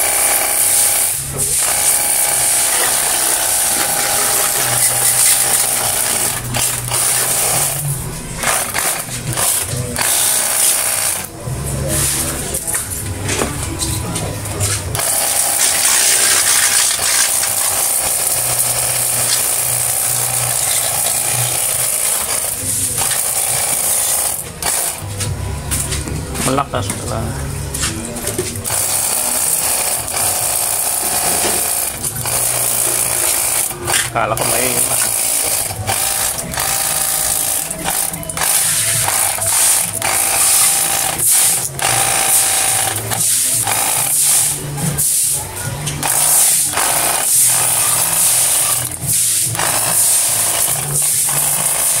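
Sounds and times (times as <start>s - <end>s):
small pump motor humming: 0.0s - 7.8s
pressure washer pump humming: 0.0s - 25.2s, 27.7s - 52.0s.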